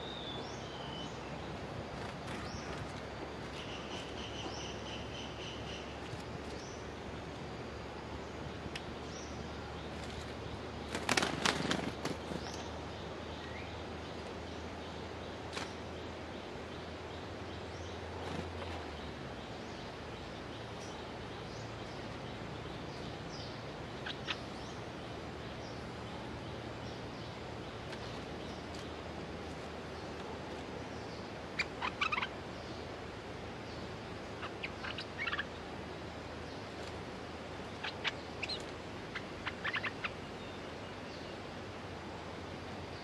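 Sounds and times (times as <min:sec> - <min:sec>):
bird chirps: 0:03.5 - 0:06.9, 0:31.0 - 0:32.8, 0:37.7 - 0:41.4.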